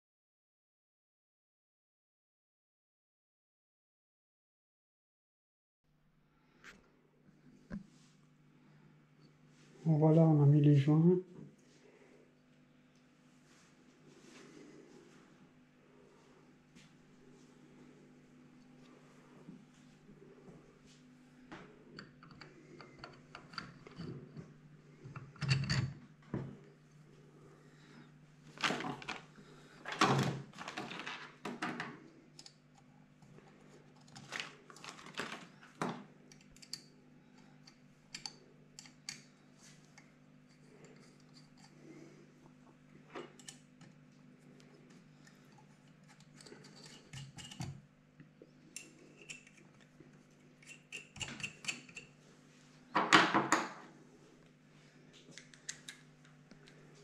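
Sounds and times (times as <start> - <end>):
parts bag rustling: 29.9 - 31.4, 34.1 - 35.7.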